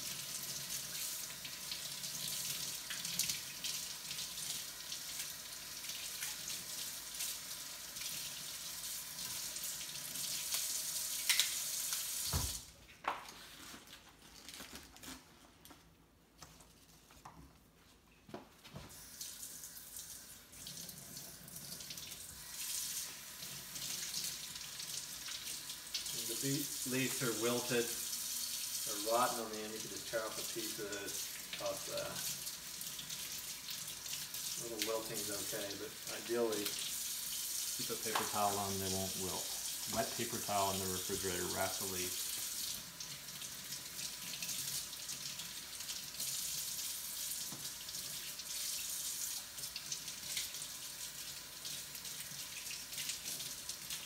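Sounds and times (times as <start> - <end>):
faucet running into sink: 19.1 - 54.0.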